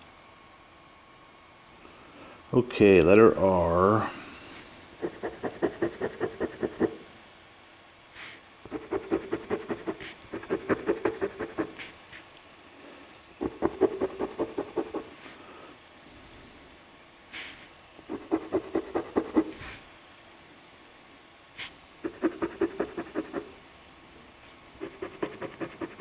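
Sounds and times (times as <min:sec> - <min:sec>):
coin scratching lottery ticket: 0:05.0 - 0:06.9, 0:08.7 - 0:11.9, 0:22.1 - 0:23.5, 0:24.8 - 0:26.0.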